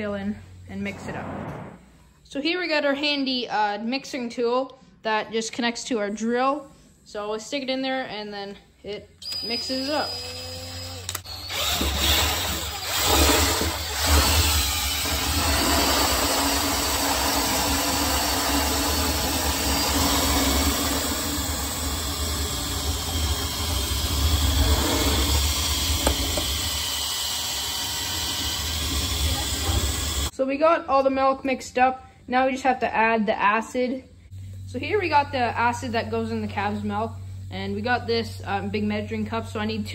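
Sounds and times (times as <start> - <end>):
cordless drill running: 9.2 - 30.3.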